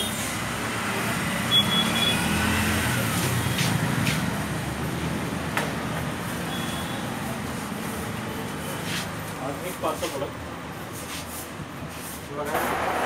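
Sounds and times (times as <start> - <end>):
road traffic: 0.0 - 13.0
vehicle passing: 0.2 - 6.4.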